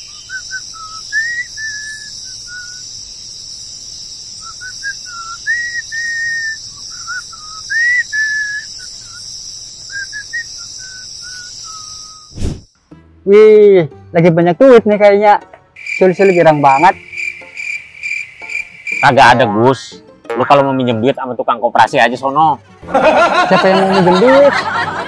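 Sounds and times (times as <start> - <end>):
man whistling a cheerful tune: 0.1 - 2.8, 4.4 - 9.2, 9.9 - 12.3.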